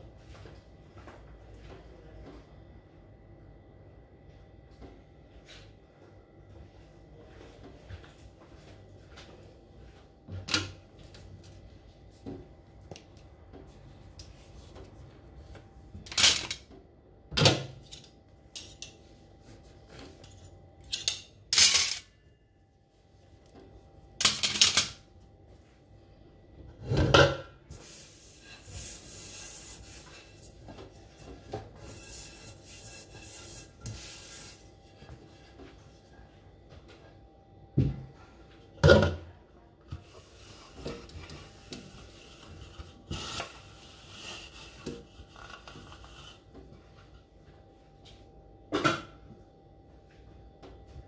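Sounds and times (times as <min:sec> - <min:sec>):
cloth rubbing a wok: 0:27.7 - 0:36.3, 0:39.9 - 0:47.1.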